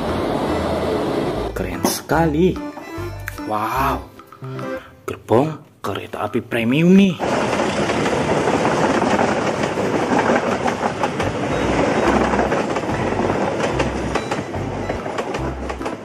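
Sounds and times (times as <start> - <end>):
train coaches rushing past: 0.0 - 2.4, 7.1 - 16.0
wheels clacking over rail joints: 6.9 - 16.0.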